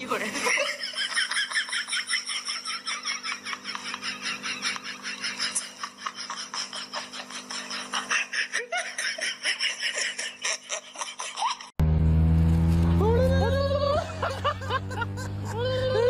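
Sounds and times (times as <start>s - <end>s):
high-pitched laughter: 0.1s - 11.7s, 13.0s - 16.0s
low hum: 11.8s - 16.0s.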